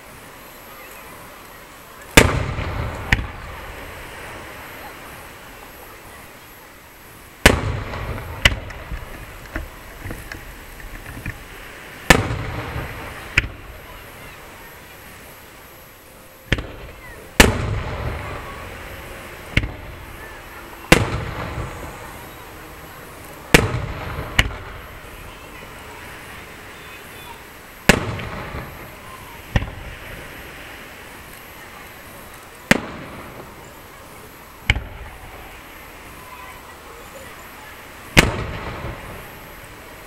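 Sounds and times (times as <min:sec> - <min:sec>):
rolling rumble: 0:00.8 - 0:40.0
firework shells bursting: 0:02.1 - 0:04.0, 0:07.4 - 0:13.8, 0:16.4 - 0:25.5, 0:27.8 - 0:30.4, 0:34.6 - 0:35.2, 0:38.1 - 0:39.8.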